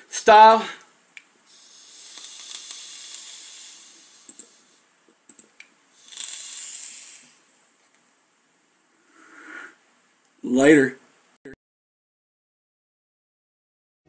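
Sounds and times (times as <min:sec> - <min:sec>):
vape hissing pulls: 0:01.5 - 0:04.8, 0:05.9 - 0:07.5
coil sizzling: 0:01.5 - 0:07.6.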